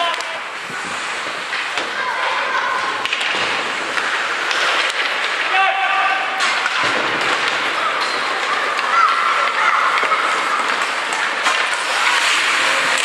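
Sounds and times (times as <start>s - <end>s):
hockey sticks knocking: 0.0s - 0.4s, 1.1s - 13.0s
skates scraping on ice: 0.0s - 13.0s.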